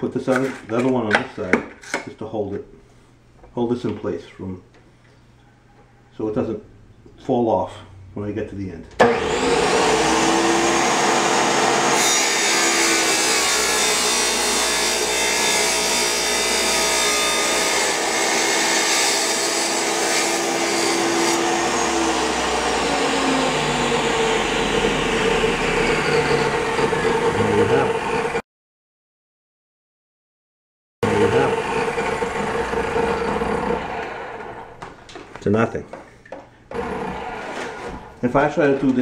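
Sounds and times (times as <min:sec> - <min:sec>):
wet tile saw cutting tile: 0:09.0 - 0:28.4, 0:31.0 - 0:34.5, 0:36.7 - 0:38.0.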